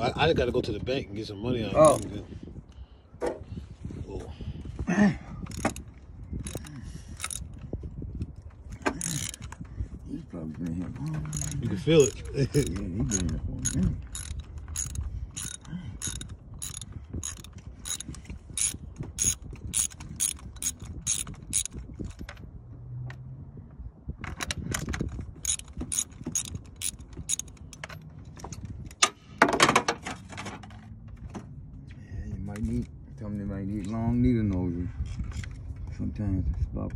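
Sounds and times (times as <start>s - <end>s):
ratchet wrench clicking: 1.8s - 2.1s, 5.5s - 5.8s, 6.4s - 7.5s, 8.9s - 9.6s, 11.2s - 22.3s, 25.4s - 27.9s
tool metal clatter: 5.5s - 7.5s, 8.7s - 9.6s, 10.8s - 22.4s, 24.5s - 30.9s.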